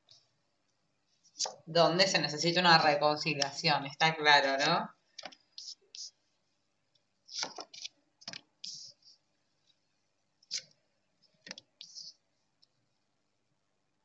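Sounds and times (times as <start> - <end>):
cards sliding: 7.3 - 8.9.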